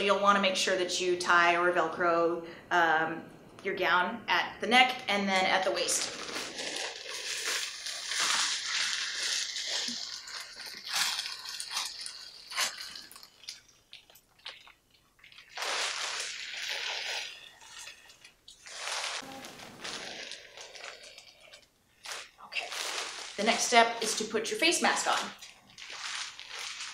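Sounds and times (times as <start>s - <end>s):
thin gown crinkling and rustling: 5.8s - 26.9s.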